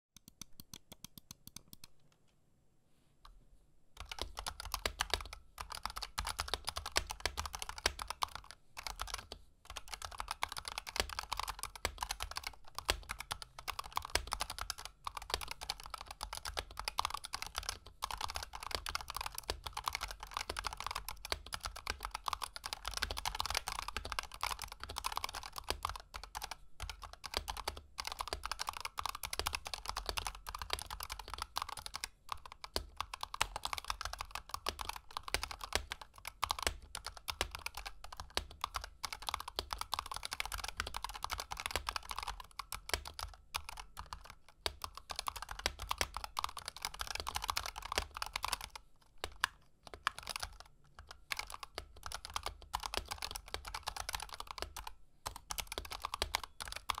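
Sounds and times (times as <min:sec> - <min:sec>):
fast keyboard typing: 0:04.0 - 0:57.0.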